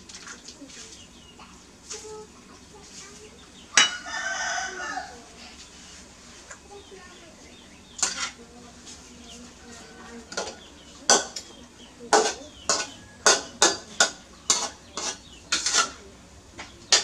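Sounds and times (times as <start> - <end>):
metal spatula scraping a wok: 8.0 - 9.0, 12.1 - 16.0.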